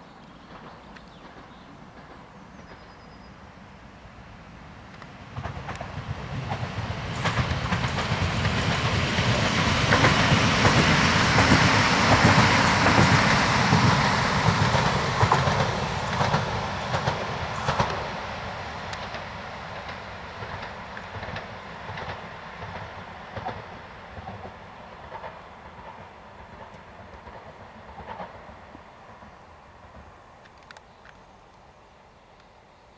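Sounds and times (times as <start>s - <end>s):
train wheels rumbling: 0.4s - 3.6s, 4.3s - 31.5s
wheels clicking over rail joints: 4.9s - 18.2s.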